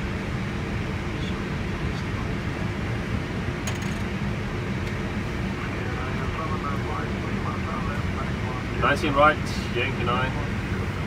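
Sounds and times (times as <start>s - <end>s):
cockpit rumble and air hiss: 0.0s - 11.0s
rattle of clicks: 3.6s - 4.1s.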